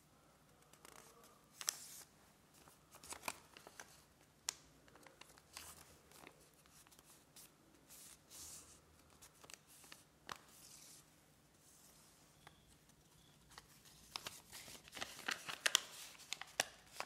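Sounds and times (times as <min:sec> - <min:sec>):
paper rustling and crinkling: 0:00.8 - 0:04.1, 0:13.4 - 0:17.0.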